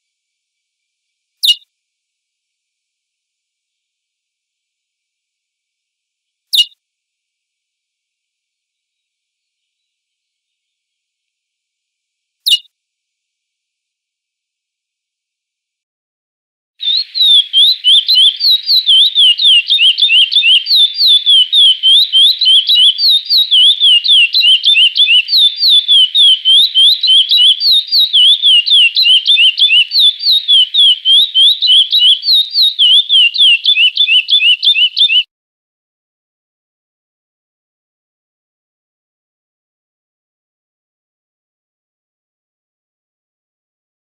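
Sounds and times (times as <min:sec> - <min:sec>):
finch singing whistled notes: 0:01.4 - 0:01.6, 0:06.5 - 0:06.8, 0:12.5 - 0:12.7, 0:16.8 - 0:35.3.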